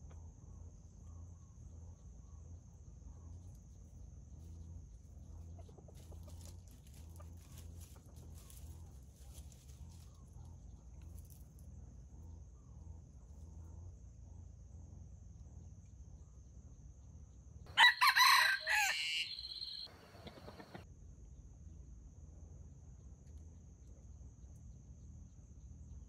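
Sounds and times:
rooster crowing: 0:17.7 - 0:20.8.

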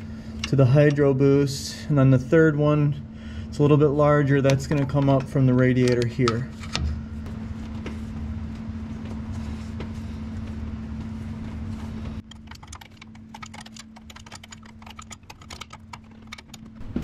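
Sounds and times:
steady hum: 0:00.0 - 0:17.0
metallic clicks and rattles: 0:12.2 - 0:16.8.

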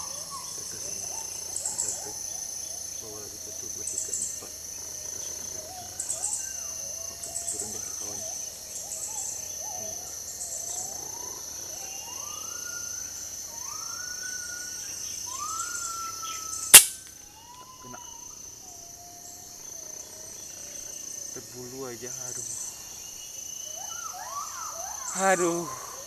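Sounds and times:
high insect buzz: 0:00.0 - 0:26.0
rising bird whistles: 0:10.7 - 0:18.4
air rifle firing: 0:16.8 - 0:17.0.

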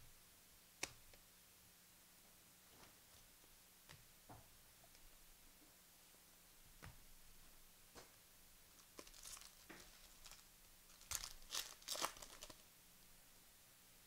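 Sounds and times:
plastic wrapper crinkling and tearing: 0:08.8 - 0:12.6.

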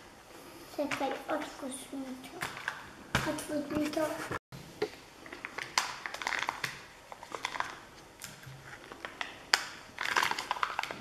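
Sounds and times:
foil wrapper crinkling: 0:05.3 - 0:11.0.

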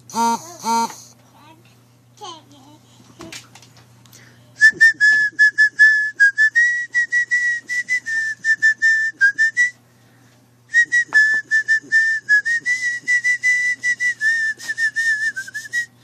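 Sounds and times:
toy whistle short toots: 0:00.1 - 0:01.1.

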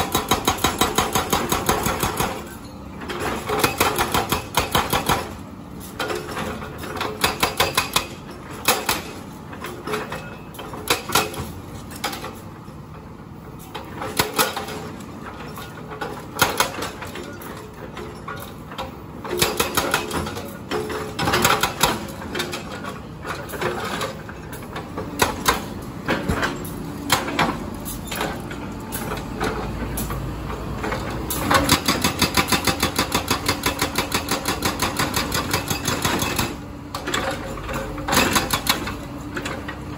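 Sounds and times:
hydraulic breaker hammering concrete: 0:00.0 - 0:02.5, 0:03.4 - 0:05.4, 0:07.1 - 0:09.1, 0:19.3 - 0:22.6, 0:31.4 - 0:37.2, 0:38.1 - 0:39.0
excavator engine running: 0:00.0 - 0:39.9.

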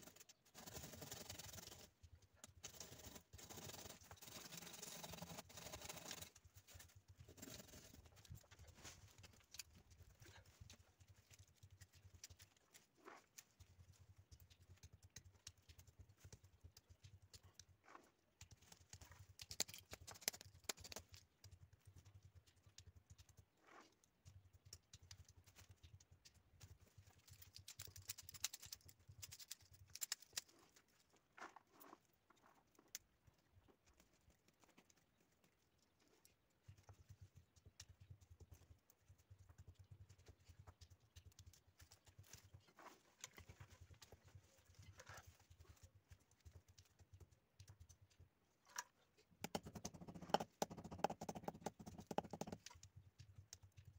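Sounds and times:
stems clicking and snapping: 0:00.0 - 0:31.2.

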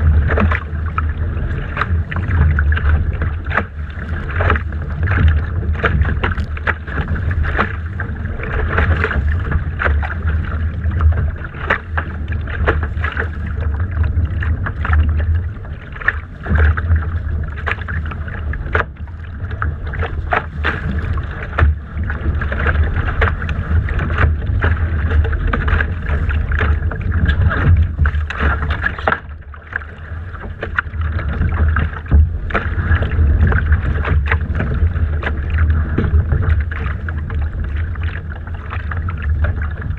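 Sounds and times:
steady rumble: 0:00.0 - 0:39.9
water slapping against hull: 0:00.0 - 0:39.9
wind buffeting microphone: 0:00.0 - 0:39.9.

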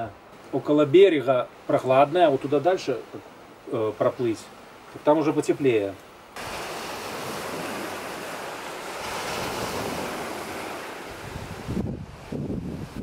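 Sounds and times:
waves washing over pebbles: 0:00.3 - 0:13.0
wind buffeting microphone: 0:06.4 - 0:13.0.

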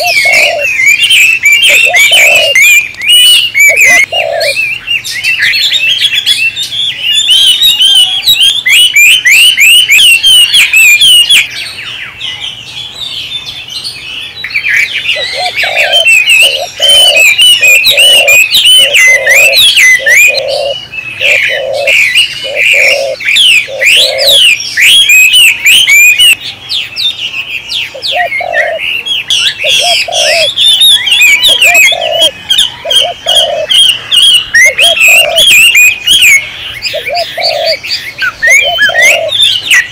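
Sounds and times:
low cooing notes: 0:00.0 - 0:00.7, 0:03.6 - 0:04.6, 0:15.3 - 0:24.4
birds chirping and singing: 0:00.0 - 0:39.9.

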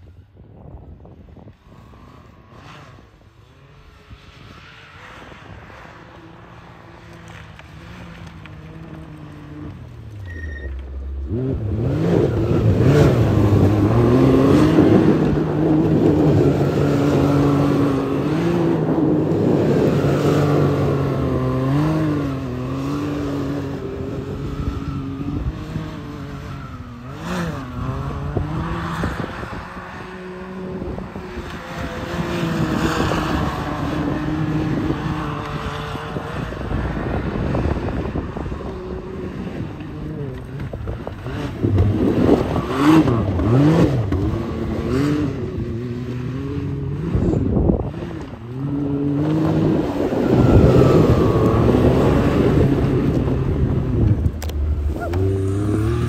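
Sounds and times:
engine revving hard: 0:54.8 - 0:56.0.

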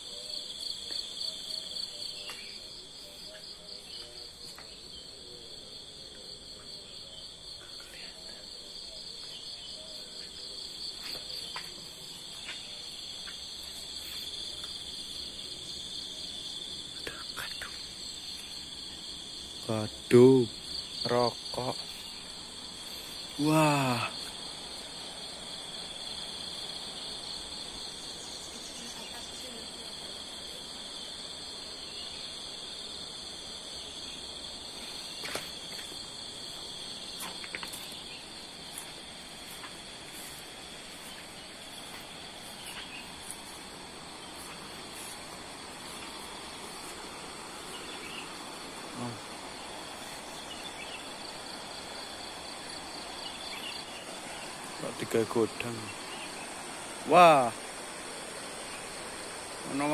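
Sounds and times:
insects chirring: 0:00.0 - 0:59.9.

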